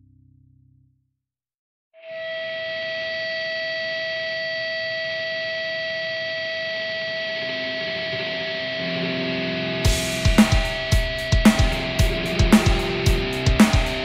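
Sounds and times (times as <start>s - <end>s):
low bass notes: 0.0s - 0.9s, 9.7s - 14.0s
held electronic tone: 2.0s - 14.0s
drums: 9.8s - 14.0s.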